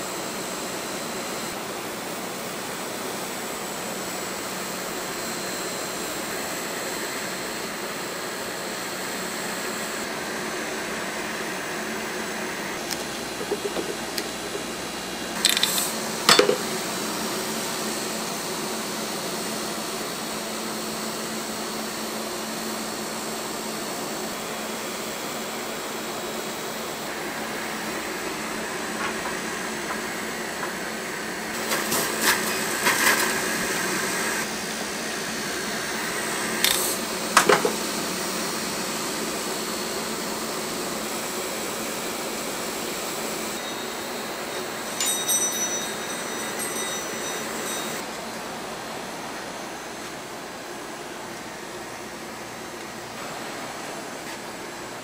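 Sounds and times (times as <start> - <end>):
cotton candy machine whirring: 9.2 - 20.0, 25.6 - 53.6.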